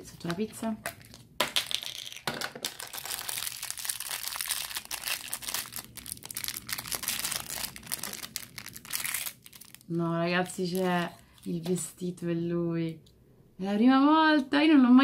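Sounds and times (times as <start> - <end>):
plastic wrapper crinkling: 0.1 - 11.8.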